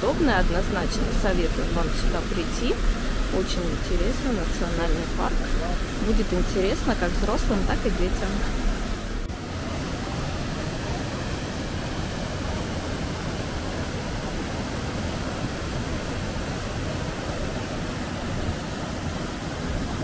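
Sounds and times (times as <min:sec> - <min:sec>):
river rushing: 0:00.0 - 0:20.0.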